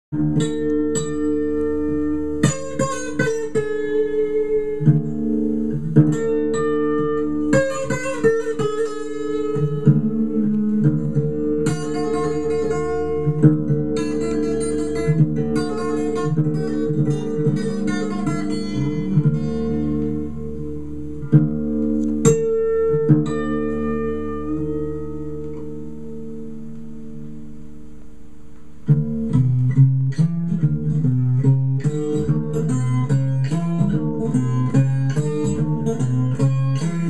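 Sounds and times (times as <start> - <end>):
acoustic blues guitar: 0.1 - 27.7, 28.5 - 37.0.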